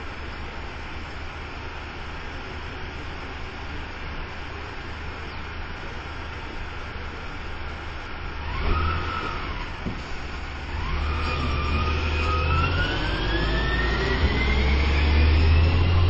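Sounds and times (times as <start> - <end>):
diesel engine rumble: 0.0 - 16.0
rising whine: 8.3 - 16.0.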